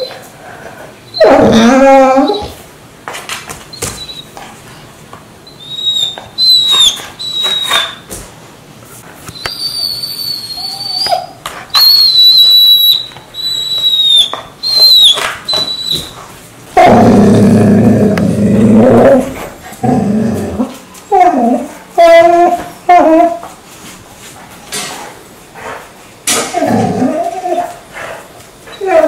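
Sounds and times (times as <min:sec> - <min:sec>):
dog whining: 0:00.0 - 0:00.2, 0:01.1 - 0:02.6, 0:03.7 - 0:04.4, 0:05.4 - 0:08.1, 0:09.3 - 0:16.2, 0:16.8 - 0:23.5, 0:26.4 - 0:27.8, 0:28.6 - 0:29.0.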